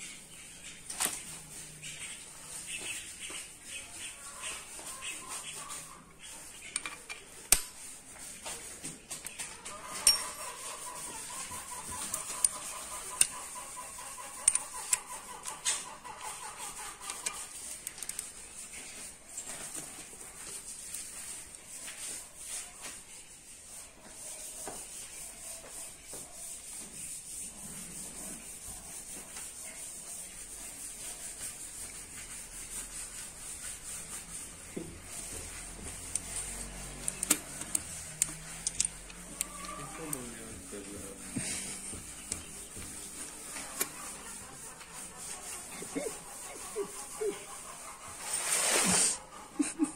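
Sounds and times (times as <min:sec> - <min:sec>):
ratchet clicking and scraping: 0:06.5 - 0:07.8, 0:09.2 - 0:18.4, 0:35.5 - 0:40.3.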